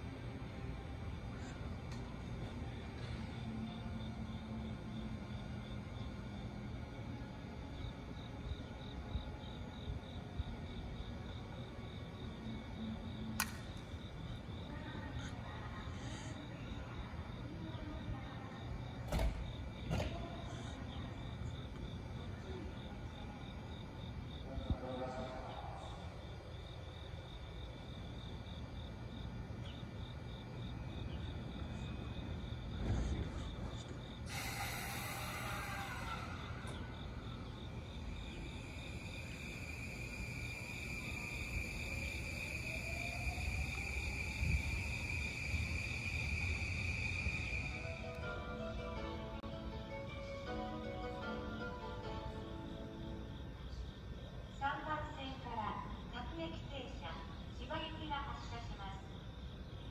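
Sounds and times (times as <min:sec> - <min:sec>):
steady low hum: 0:00.0 - 0:50.2
insects chirping: 0:00.0 - 0:59.9
electric train motors whining: 0:32.8 - 0:48.4.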